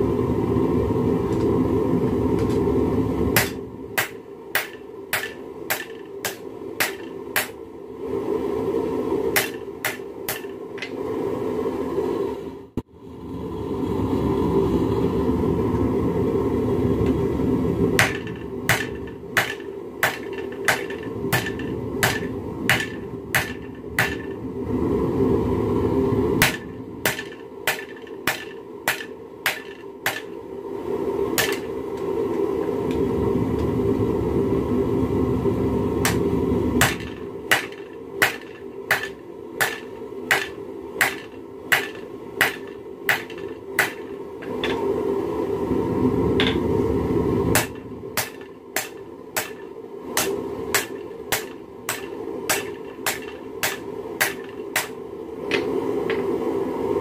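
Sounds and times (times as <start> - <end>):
hammer striking metal on anvil: 3.4 - 7.6, 9.4 - 10.9, 18.0 - 24.3, 26.4 - 30.4, 31.4 - 31.7, 36.8 - 44.8, 47.6 - 56.2
low rushing noise: 10.9 - 20.0, 21.0 - 27.7, 30.4 - 43.0, 44.2 - 50.8.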